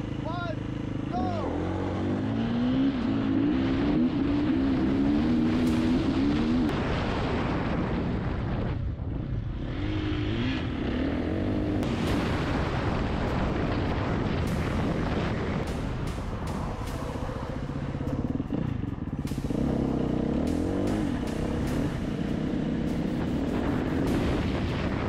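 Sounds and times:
motorcycle engine revving: 0.0 - 7.0, 9.2 - 25.0
wind noise: 3.4 - 10.8, 11.6 - 25.0
sharp ticks: 12.1 - 25.0.

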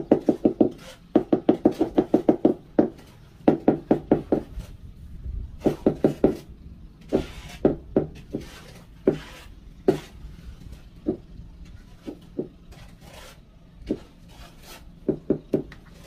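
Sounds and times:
tool knocking floor tile: 0.0 - 4.5
light scraping: 4.3 - 15.1, 15.7 - 16.0.

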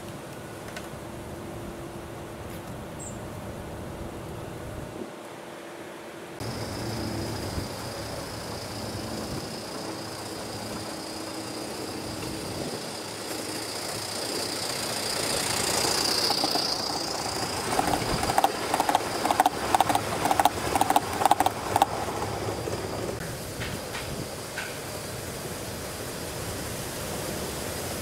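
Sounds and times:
model train rolling on track: 6.4 - 28.0
wheel clicks on rails: 9.6 - 24.8.

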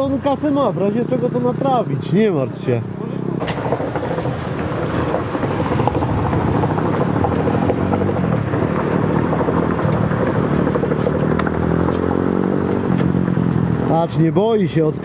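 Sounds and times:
motorcycle engine running: 0.0 - 13.9.

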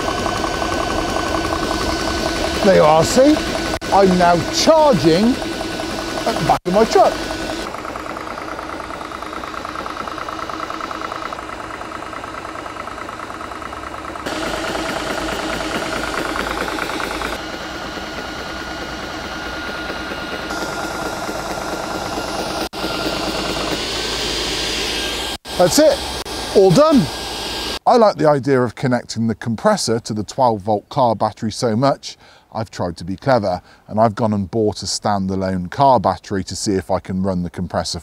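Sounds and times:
air compressor pumping: 0.0 - 27.8.

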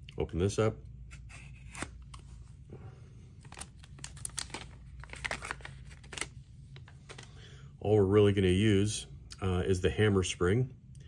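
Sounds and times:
plastic bag crinkling: 3.4 - 7.3.

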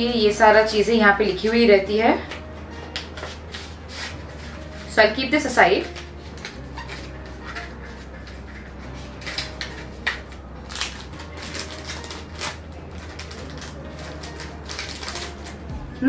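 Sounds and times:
plastic pouch crinkling: 9.2 - 15.7.

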